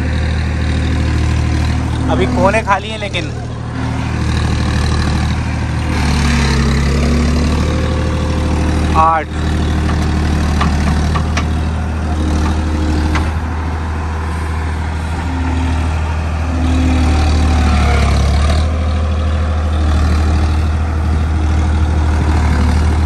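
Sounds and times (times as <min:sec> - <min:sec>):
backhoe digging mud: 0:00.0 - 0:23.0
tractor diesel engine running: 0:00.0 - 0:23.0.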